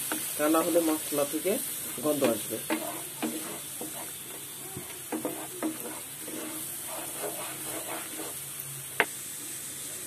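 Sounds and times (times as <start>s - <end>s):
paste sizzling in oil: 0.0s - 10.0s
spatula scraping pan: 1.7s - 8.5s.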